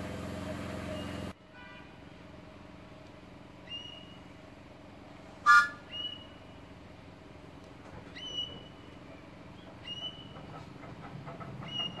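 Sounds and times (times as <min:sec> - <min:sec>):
engine running: 0:00.0 - 0:01.4, 0:02.1 - 0:12.0
high rising bird chirps: 0:05.5 - 0:06.5.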